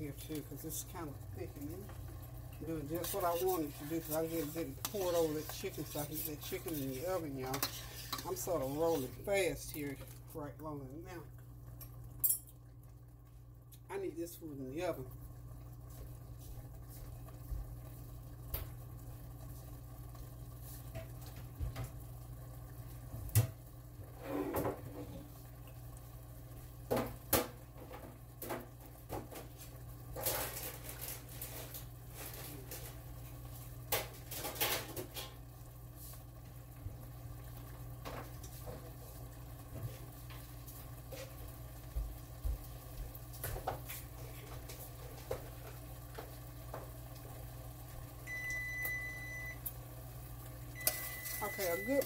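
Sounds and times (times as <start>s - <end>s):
steady low hum: 0.0s - 26.8s.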